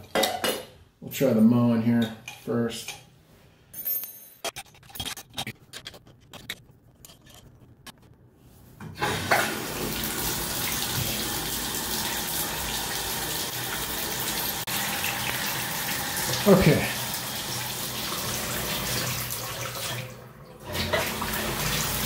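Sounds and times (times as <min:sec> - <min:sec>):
water running into bathtub: 0:09.0 - 0:22.0.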